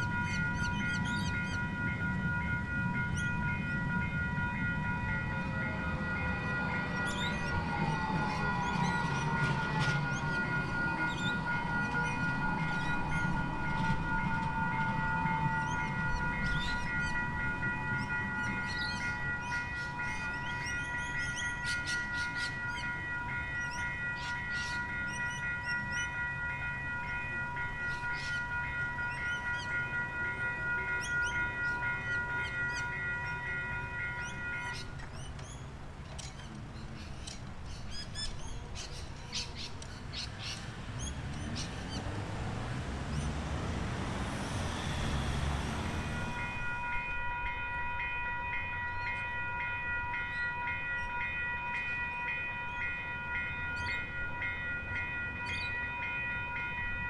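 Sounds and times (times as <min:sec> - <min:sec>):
level crossing bells dinging: 0:00.0 - 0:35.5, 0:37.9 - 0:57.0
tram rumbling past: 0:00.0 - 0:57.0
birds chirping: 0:06.6 - 0:26.2, 0:27.0 - 0:46.8.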